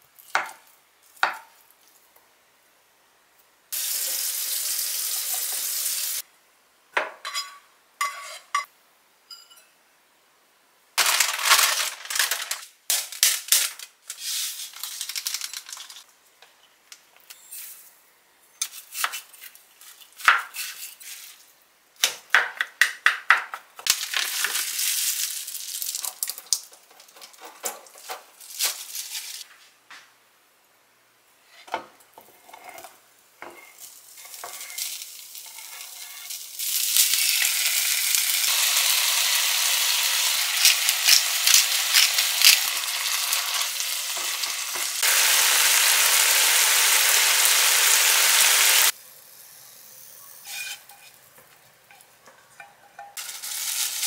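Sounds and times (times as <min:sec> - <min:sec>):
steady hiss: 0:03.7 - 0:06.6, 0:33.1 - 0:52.1
crackly rustling and mixing: 0:11.0 - 0:16.3, 0:23.8 - 0:29.8.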